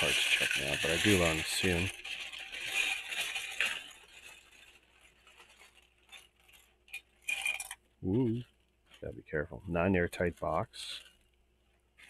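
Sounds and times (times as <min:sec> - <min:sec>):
plastic pieces clattering: 0:00.0 - 0:07.8
plastic bag rustling: 0:00.0 - 0:12.0.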